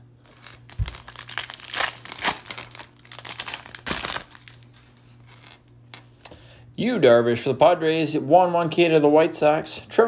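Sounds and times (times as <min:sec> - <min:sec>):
foil wrapper crinkling: 0:00.2 - 0:05.6.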